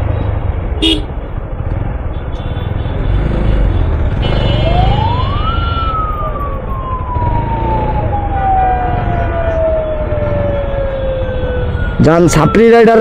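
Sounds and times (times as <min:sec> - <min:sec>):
motorcycle engine: 0:00.0 - 0:12.0
street traffic rumble: 0:00.0 - 0:13.0
car horn: 0:00.8 - 0:01.2, 0:03.8 - 0:04.9
emergency vehicle siren: 0:04.3 - 0:13.0.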